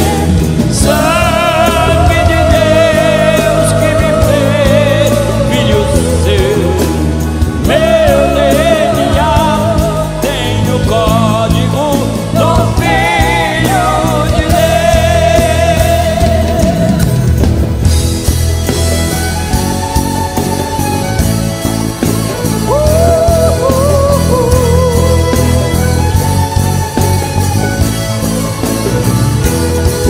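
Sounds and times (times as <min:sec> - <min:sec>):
person singing with vibrato: 0:00.0 - 0:17.4, 0:22.4 - 0:27.1
band accompaniment: 0:00.0 - 0:30.0.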